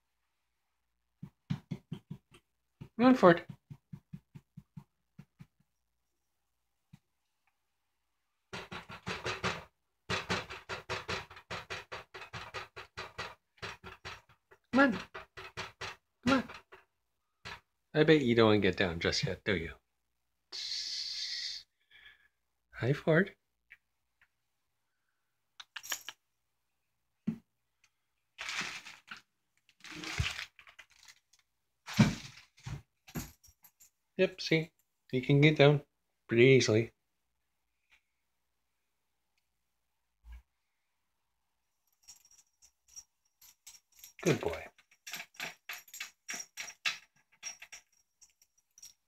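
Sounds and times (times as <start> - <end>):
knocks and rustles: 1.2 - 5.8, 8.5 - 17.8, 28.4 - 31.3, 31.9 - 33.8
plastic bag crinkling: 28.4 - 32.7
light clinks: 41.9 - 49.0.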